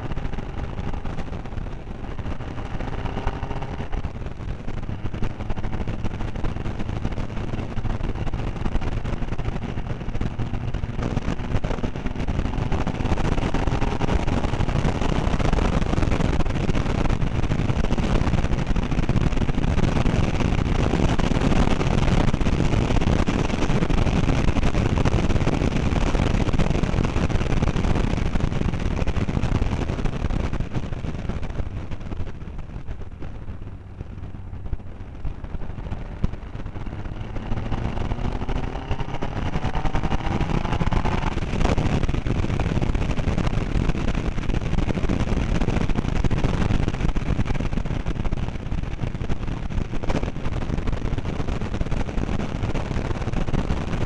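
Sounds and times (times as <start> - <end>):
race car engine rumble: 0.0 - 54.0
road noise: 0.0 - 54.0.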